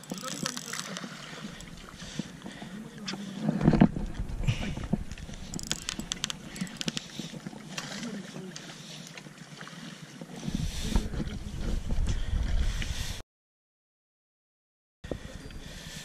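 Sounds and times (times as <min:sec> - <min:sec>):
fishing reel clicking: 0:00.0 - 0:01.8, 0:05.3 - 0:07.2
wind buffeting microphone: 0:03.6 - 0:06.9, 0:10.5 - 0:13.2.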